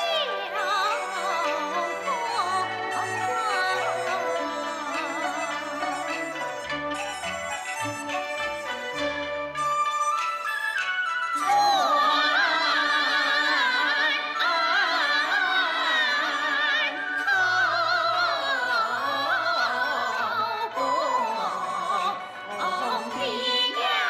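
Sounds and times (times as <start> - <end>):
opera singing with vibrato: 0.0 - 6.6, 11.4 - 24.0
instrumental accompaniment: 0.0 - 15.5.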